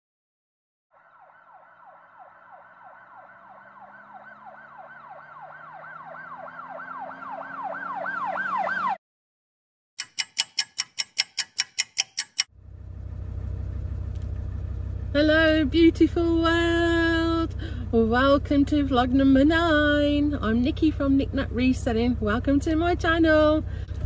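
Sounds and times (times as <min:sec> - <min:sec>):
siren yelping: 0:00.9 - 0:09.0
sharp ticks: 0:10.0 - 0:12.5.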